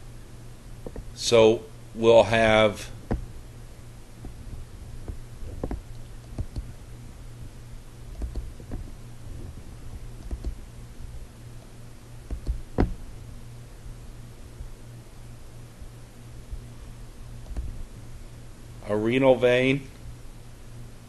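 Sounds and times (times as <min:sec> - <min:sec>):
low steady hum: 0:00.0 - 0:21.0
computer mouse clicking: 0:05.6 - 0:06.7, 0:08.1 - 0:08.8, 0:10.2 - 0:10.6, 0:12.3 - 0:12.9, 0:17.4 - 0:17.7.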